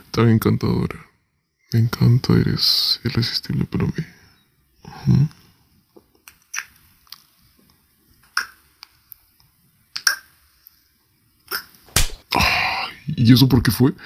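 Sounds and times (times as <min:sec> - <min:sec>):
lip smacks and mouth clicks: 0:06.2 - 0:07.3.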